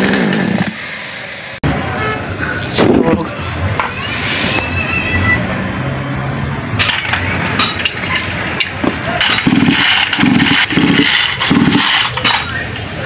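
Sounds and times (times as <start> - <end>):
engine turning over: 6.8 - 12.4
metal parts clinking and knocking: 6.8 - 12.6.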